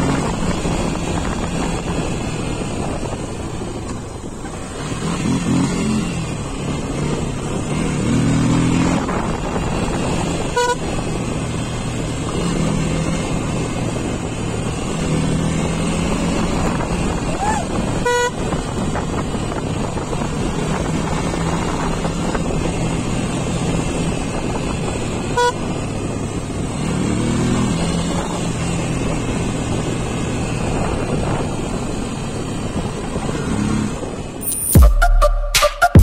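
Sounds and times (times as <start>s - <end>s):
motorcycle engine running: 0.0s - 34.8s
wind noise on microphone: 0.0s - 34.8s
short horn beep: 34.4s - 36.0s.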